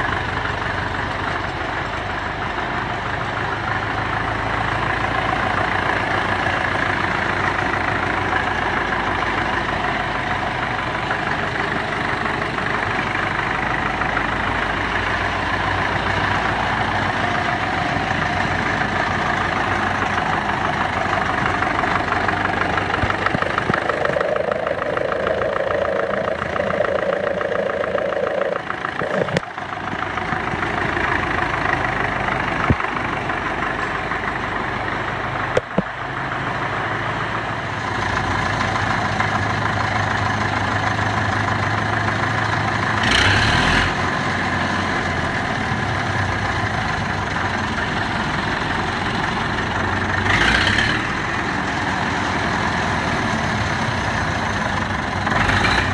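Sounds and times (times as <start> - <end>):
crawler engine idling: 0.0 - 55.9
rushes of noise: 19.4 - 31.6.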